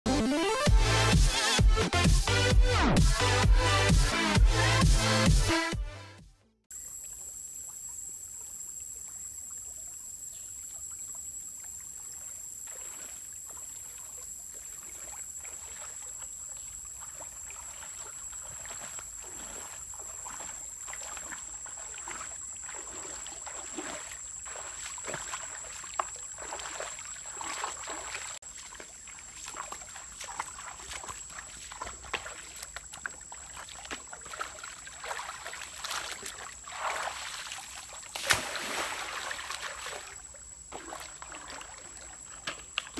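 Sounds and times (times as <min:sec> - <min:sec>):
steady outdoor hiss: 0:06.7 - 0:42.9
water splashing from wading: 0:06.8 - 0:42.9.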